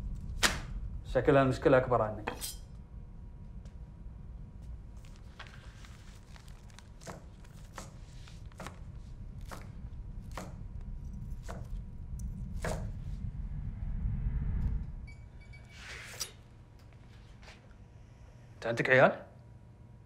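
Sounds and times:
steady low rumble: 0.0 - 15.7
knife chopping on cutting board: 7.0 - 8.8, 9.4 - 9.7, 10.3 - 10.6, 11.3 - 11.8, 12.6 - 12.9.

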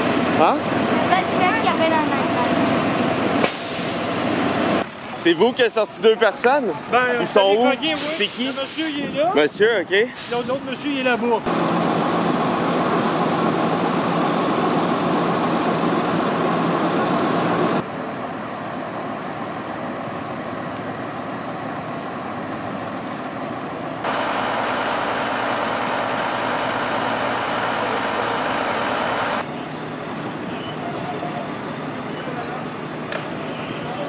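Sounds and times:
fire truck engines idling: 0.0 - 34.0.

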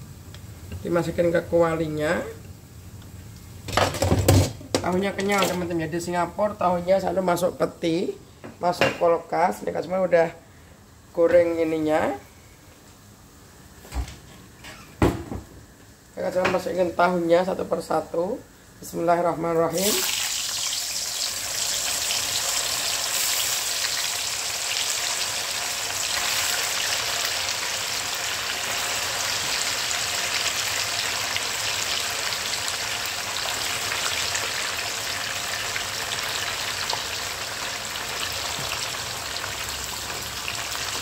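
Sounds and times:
oil sizzling in a wok: 19.7 - 41.0.

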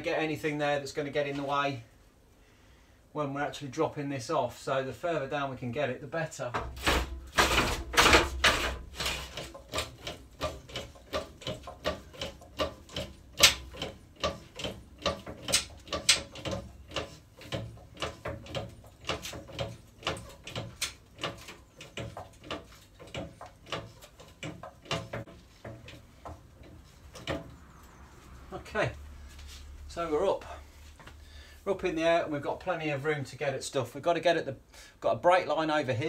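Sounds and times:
hydraulic jack pump clicking: 6.6 - 27.5.

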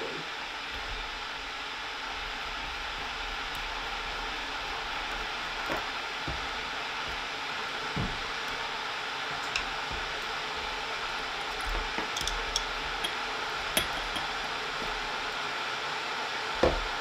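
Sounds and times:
metal parts clicking: 11.4 - 13.2.

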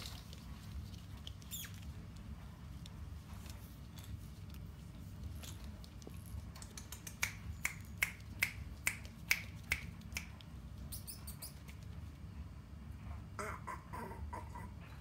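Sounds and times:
finger snaps: 6.6 - 10.5.

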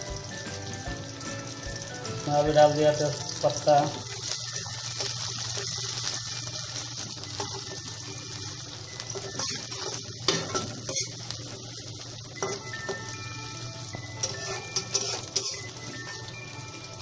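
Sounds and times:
onions sizzling in hot oil: 0.0 - 17.0
metal spoon scraping a pan: 9.2 - 11.3, 14.2 - 16.0.

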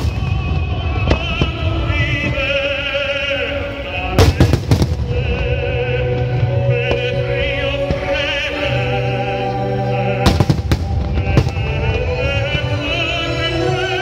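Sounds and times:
firework bangs: 0.0 - 7.2, 10.2 - 12.7
held backing notes: 0.0 - 14.0
operatic singing: 0.0 - 14.0.

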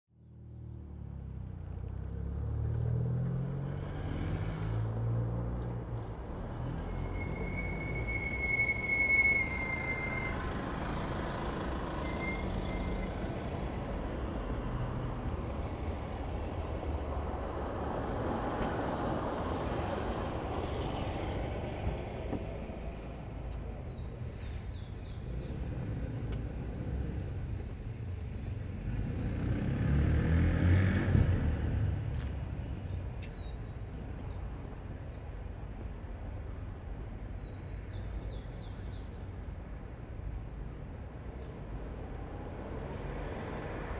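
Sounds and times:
passing cars: 0.2 - 43.9
heavy vehicle engine rumble: 1.6 - 29.1.

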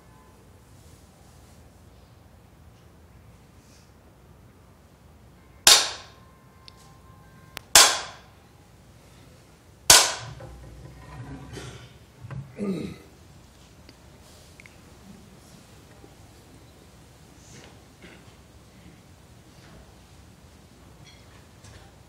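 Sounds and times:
wooden staff knocks: 5.7 - 6.1, 7.8 - 8.2, 9.9 - 10.7.

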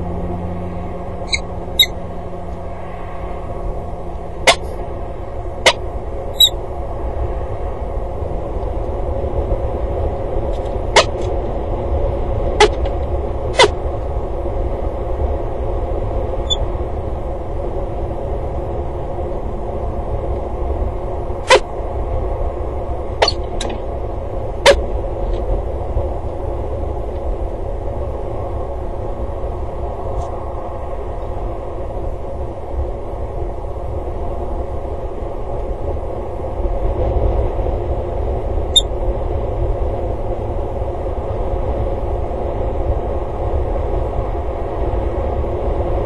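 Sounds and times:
wind rumble and hiss: 0.0 - 46.0.

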